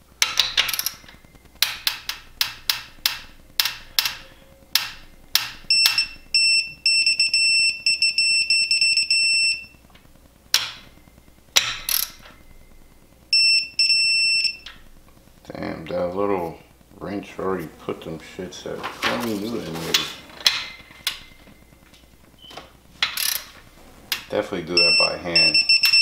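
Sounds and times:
electronic beeper: 4.2s - 9.9s, 10.8s - 14.9s, 23.8s - 26.0s.

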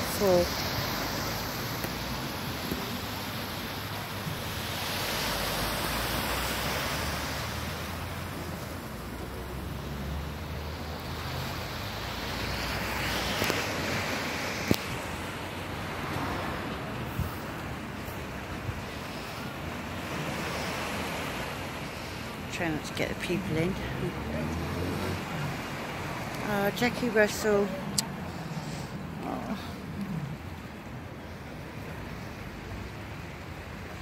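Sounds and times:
small sea waves washing ashore: 0.0s - 34.0s
wind rumbling on microphone: 15.9s - 19.5s.

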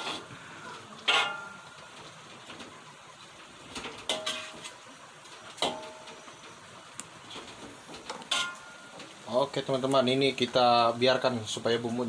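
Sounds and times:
faint frying sizzle: 0.0s - 12.0s
spatula clanging against wok: 1.1s - 1.6s, 4.1s - 4.5s, 8.3s - 8.8s.

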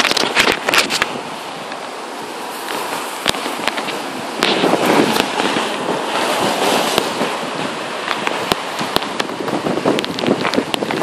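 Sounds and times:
heavy rain: 0.0s - 11.0s
raindrops tapping microphone: 0.0s - 11.0s.

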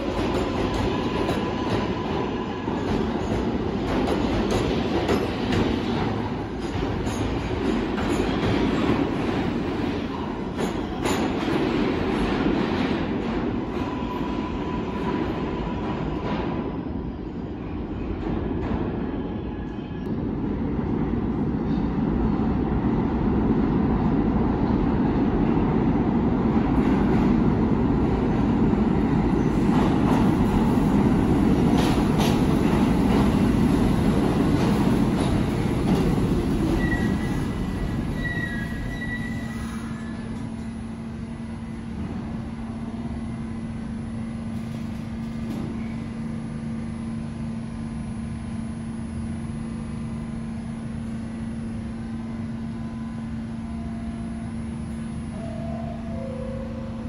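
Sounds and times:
subway train rumbling: 0.0s - 57.0s
high wheel squeals: 36.7s - 40.4s.

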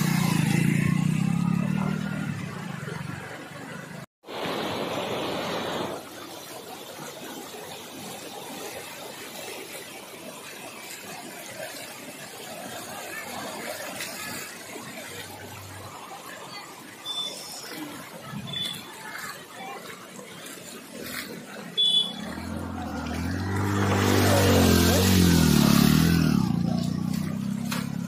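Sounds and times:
floodwater rushing over road: 0.0s - 28.0s
heavy rain: 21.8s - 26.9s.

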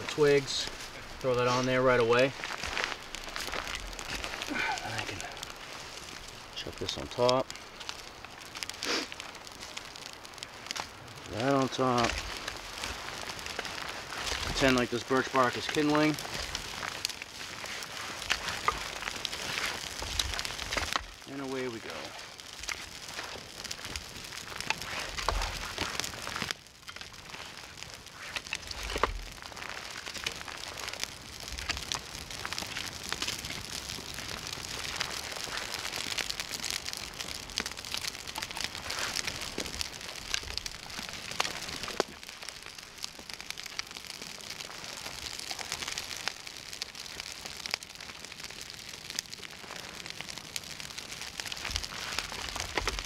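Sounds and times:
campfire crackling and hissing: 0.0s - 53.0s.

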